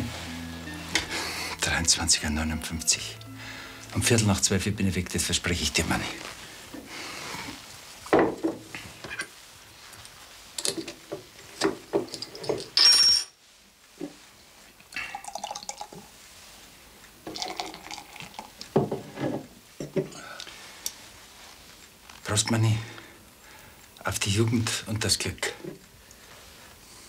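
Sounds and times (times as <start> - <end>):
glasses and bottles clinking: 12.0 - 13.4
beer pouring into a glass: 14.9 - 16.1, 17.2 - 18.7.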